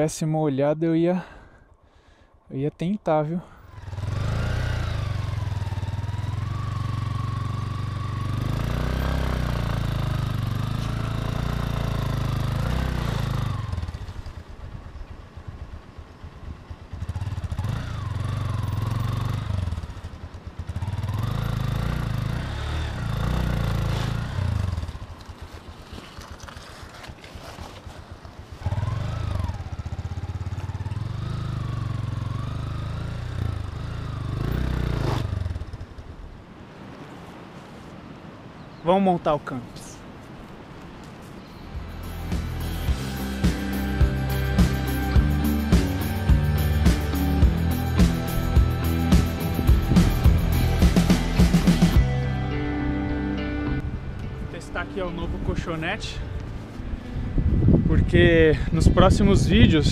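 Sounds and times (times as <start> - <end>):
motorcycle engine revving: 3.5 - 36.3, 41.6 - 53.9.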